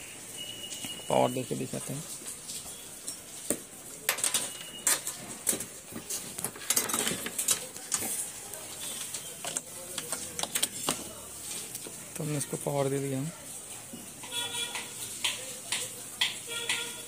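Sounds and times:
hands handling wires: 3.4 - 11.9.

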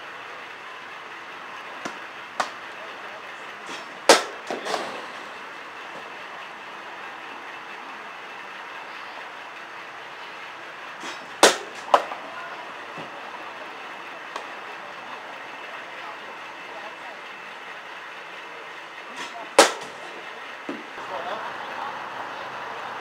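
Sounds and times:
bat striking softball: 1.8 - 2.6, 3.7 - 5.3, 11.0 - 12.3, 19.2 - 20.1.

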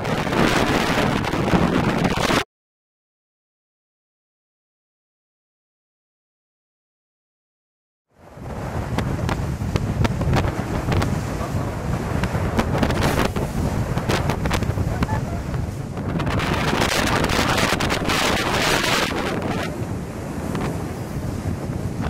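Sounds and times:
hull slapping waves: 0.0 - 2.4, 8.2 - 22.0
wind buffeting microphone: 0.0 - 2.4, 8.2 - 22.0.

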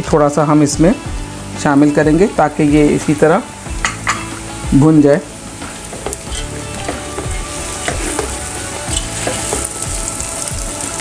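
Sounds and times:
food sizzling in a pot: 0.0 - 11.0
spatula scraping pot: 5.8 - 9.8.

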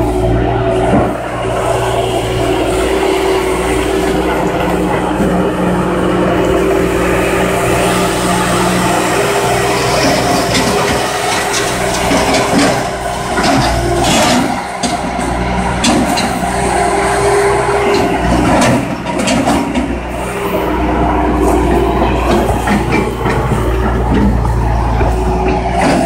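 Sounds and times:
diesel engine droning: 0.0 - 26.0.

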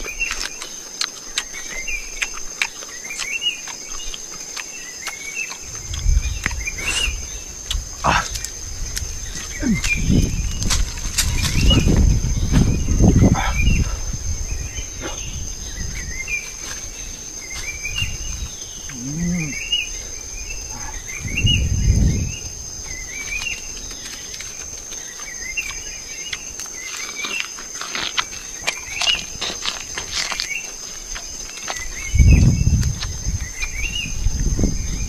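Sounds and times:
insect drone: 0.0 - 35.0
low rumbles: 5.6 - 24.4
warbling bird calls: 11.2 - 24.4.

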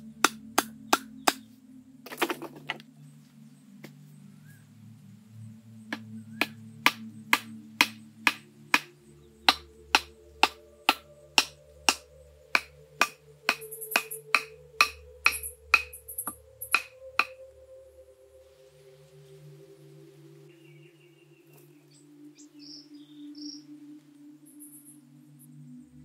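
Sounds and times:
wooden club knocking on stake: 2.1 - 2.8, 5.9 - 8.9, 9.5 - 12.0, 12.6 - 16.0, 16.7 - 17.4.

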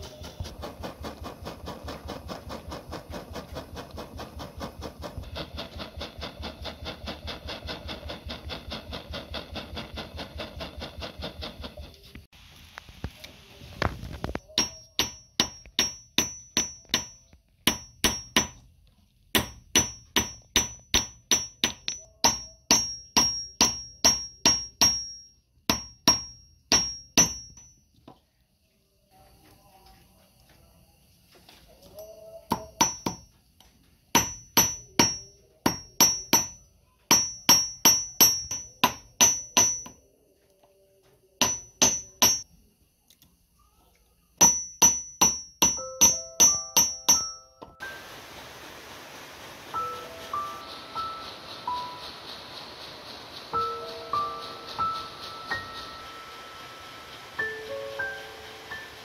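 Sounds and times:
torch flame pulsing: 0.0 - 14.4, 47.8 - 59.0
hammer striking metal strip: 14.3 - 18.6, 19.3 - 27.7, 32.5 - 33.3, 34.1 - 40.0, 41.4 - 42.5, 44.4 - 47.4.

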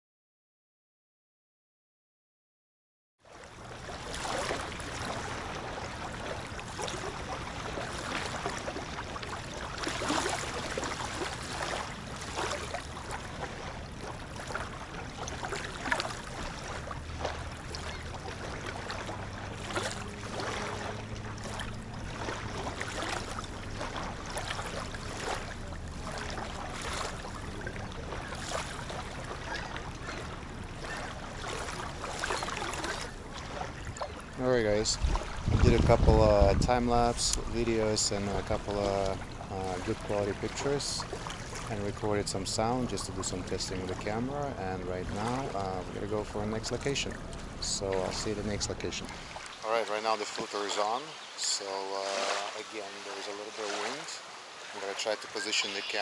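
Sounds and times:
small waves lapping on pebbles: 3.3 - 34.3, 47.0 - 56.0.

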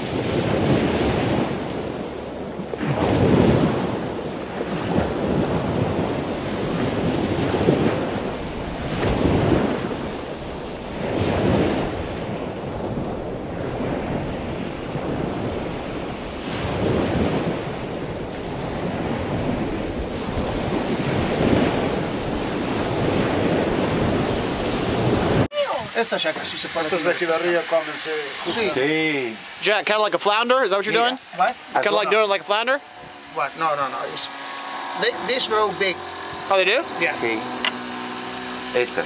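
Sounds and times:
wind gusting over microphone: 0.0 - 25.5.

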